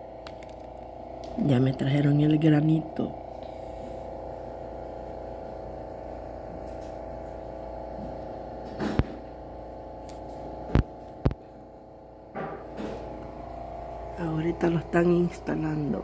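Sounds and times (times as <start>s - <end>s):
steady tonal hum: 0.0s - 16.0s.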